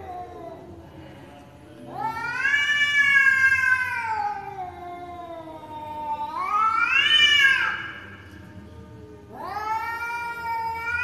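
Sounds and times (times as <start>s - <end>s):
cats yowling: 1.9s - 8.1s, 9.3s - 11.0s.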